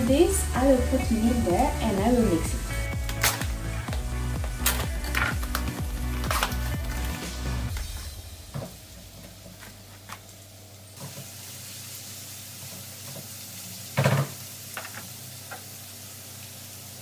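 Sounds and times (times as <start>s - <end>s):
meat sizzling in a frying pan: 11.0s - 17.0s.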